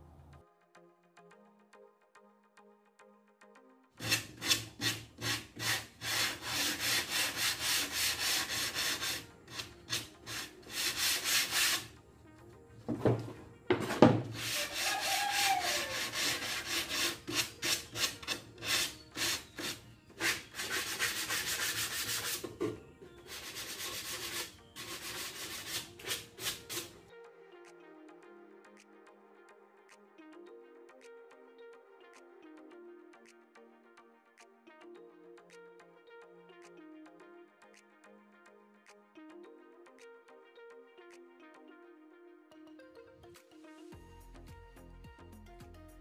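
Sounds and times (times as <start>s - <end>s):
hand-sanding scraping strokes: 4.0s - 11.9s, 14.3s - 22.5s, 23.2s - 27.0s.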